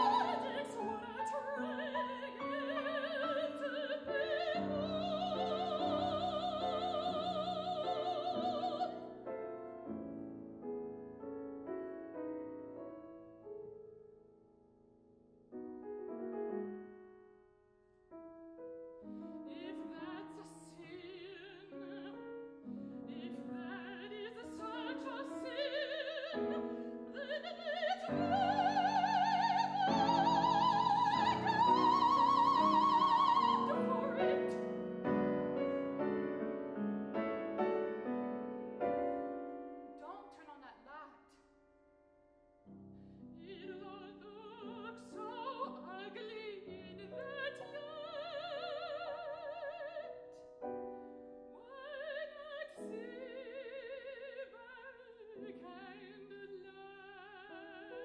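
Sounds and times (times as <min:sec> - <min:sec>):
operatic soprano singing: 0:00.0 - 0:09.2, 0:19.1 - 0:35.6, 0:43.4 - 0:50.4, 0:51.6 - 0:58.0
grand piano: 0:00.0 - 0:58.0.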